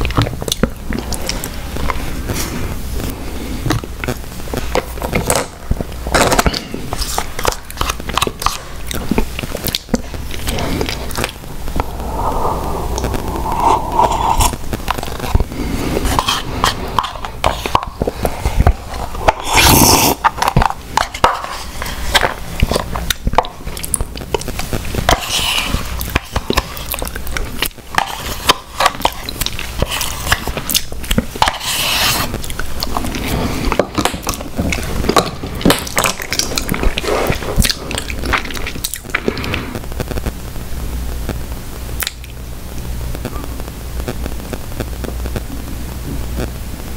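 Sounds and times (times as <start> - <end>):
wet mouth sounds of eating: 0.0 - 2.4, 3.0 - 21.5, 22.1 - 39.8
plastic spoon scraping a cup: 13.0 - 22.8, 25.1 - 27.0, 28.0 - 30.7, 31.4 - 33.8.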